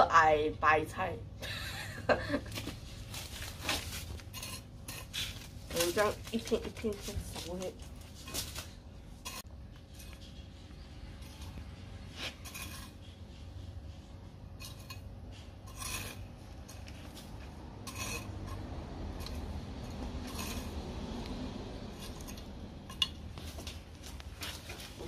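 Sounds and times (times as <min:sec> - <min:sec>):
low steady rumble: 0:00.0 - 0:25.0
hoe scraping soil: 0:03.3 - 0:08.4, 0:12.1 - 0:13.0, 0:15.6 - 0:20.9.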